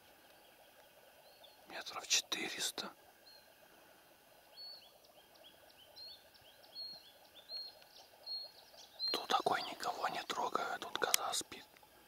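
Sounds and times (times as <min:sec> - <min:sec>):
small bird chirping: 0:04.5 - 0:11.6.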